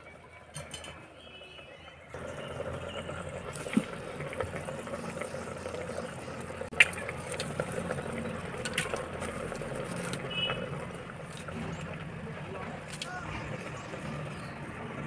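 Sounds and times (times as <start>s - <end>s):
charcoal lumps clinking and scraping: 6.7s - 12.0s.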